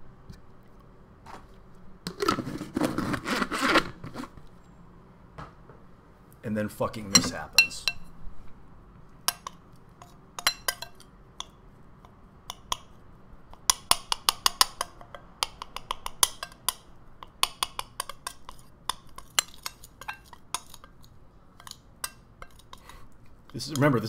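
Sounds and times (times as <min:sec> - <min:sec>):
metal spoon clinking on glass bowl: 0:07.1 - 0:08.1, 0:09.3 - 0:11.5, 0:13.6 - 0:22.8.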